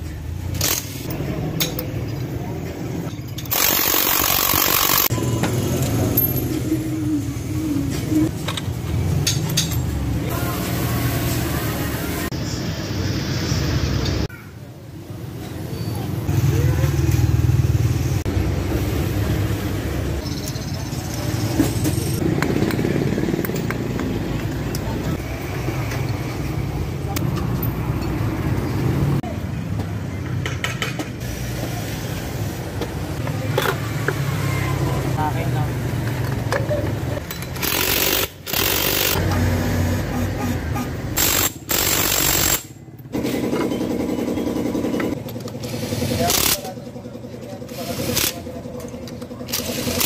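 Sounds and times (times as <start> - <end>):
motorcycle engine rumbling: 14.7 - 37.6.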